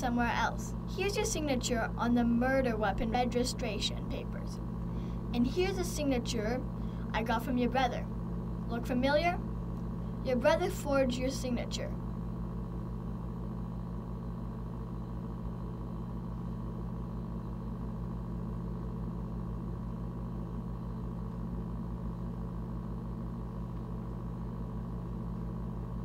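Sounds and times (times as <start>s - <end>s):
mechanical hum with flutter: 0.0s - 26.0s.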